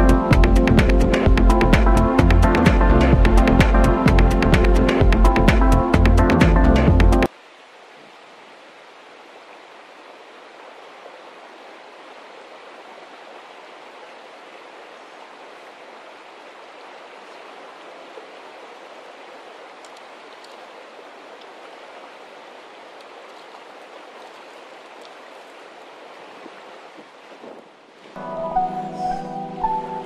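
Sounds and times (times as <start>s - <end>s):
river flowing over rocks: 7.2s - 28.2s.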